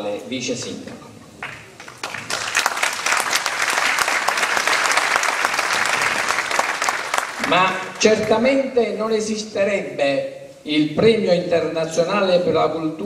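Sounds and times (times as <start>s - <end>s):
audience applauding: 1.4s - 8.4s
person speaking: 7.4s - 13.0s.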